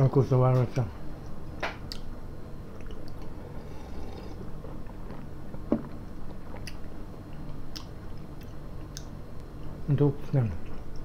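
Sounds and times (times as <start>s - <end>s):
low steady hum: 0.0s - 11.0s
soft mouth clicks: 1.9s - 2.1s, 7.7s - 9.1s.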